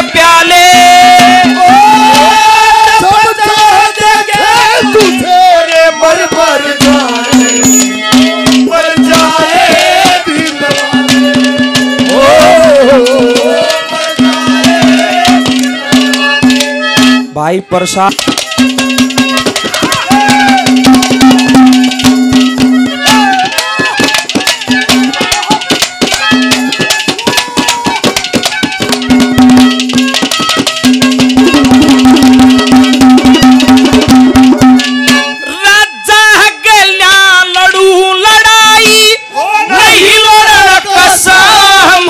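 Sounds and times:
man singing: 0:00.0 - 0:15.6, 0:35.5 - 0:42.0
fast hand-drum beats: 0:00.0 - 0:17.2, 0:17.8 - 0:35.4
melody line: 0:31.0 - 0:35.4.

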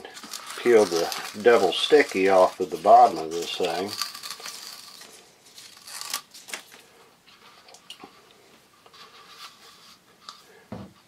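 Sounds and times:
tape liner peeling: 0:00.2 - 0:06.7.

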